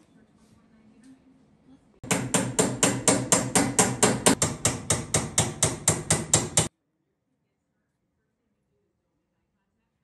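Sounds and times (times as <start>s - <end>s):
hammer striking metal: 2.0s - 6.7s.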